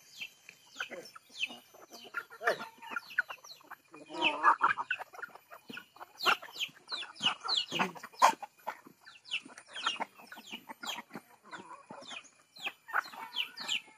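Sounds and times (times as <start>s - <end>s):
chickens clucking: 0.0s - 13.9s.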